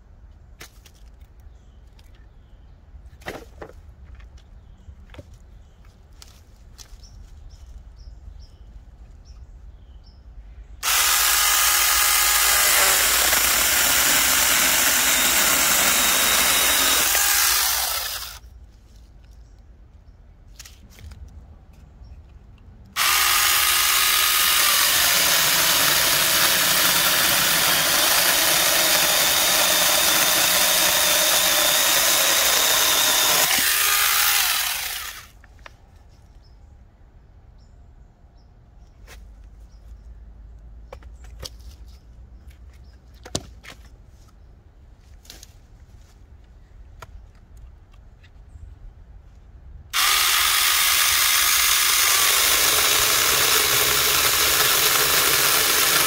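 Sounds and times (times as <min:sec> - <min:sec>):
electric chainsaw cutting logs: 0:10.8 - 0:18.4, 0:22.9 - 0:35.4, 0:49.9 - 0:56.0.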